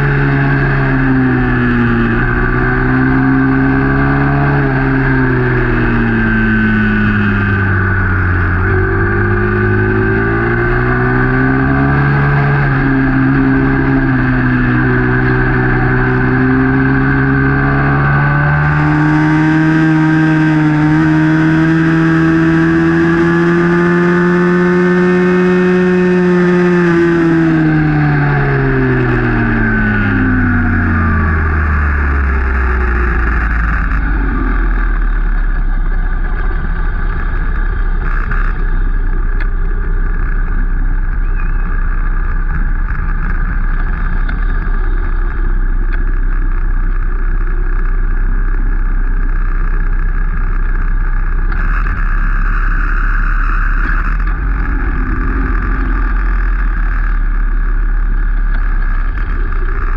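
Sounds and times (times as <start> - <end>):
minibike engine running: 0.0 - 59.9.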